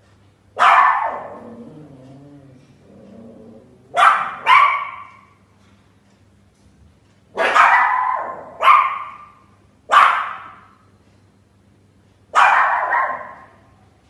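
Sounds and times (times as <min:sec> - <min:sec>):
small dogs barking: 0:00.6 - 0:05.4, 0:07.3 - 0:10.7, 0:12.3 - 0:13.8.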